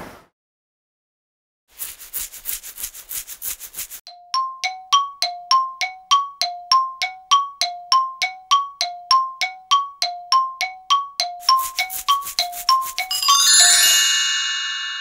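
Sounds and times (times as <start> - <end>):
metallic dings in tick-tock rhythm: 4.1 - 13.2.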